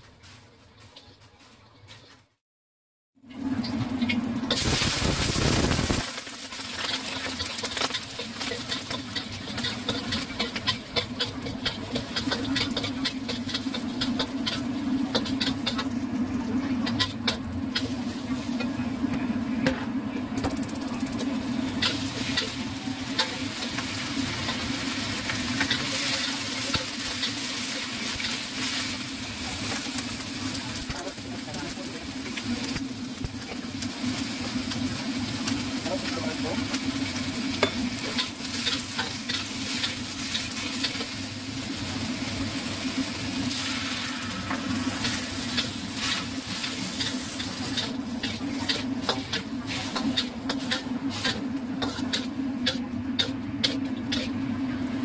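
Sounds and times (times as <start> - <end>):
vegetables sizzling in hot oil: 3.4 - 19.1, 20.4 - 54.9
metal spatula scraping wok: 6.8 - 18.8, 21.2 - 30.2, 37.0 - 41.2, 43.4 - 54.4.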